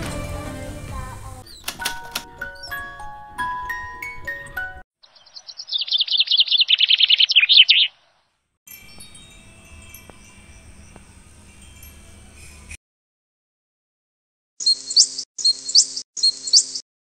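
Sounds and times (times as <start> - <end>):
small bird chirping trill: 5.0 - 8.3, 14.6 - 16.8
metal wind chime ringing: 8.7 - 12.8.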